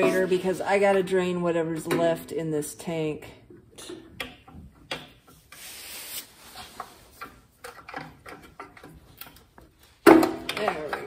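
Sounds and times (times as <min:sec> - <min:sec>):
clicks and taps of tools: 0:03.8 - 0:05.2
short hiss: 0:05.6 - 0:06.4.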